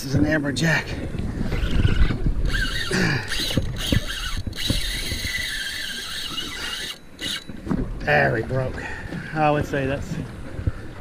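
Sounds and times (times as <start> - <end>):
wind and water rumble: 0.0 - 11.0
fishing reel drag screaming: 1.5 - 7.5.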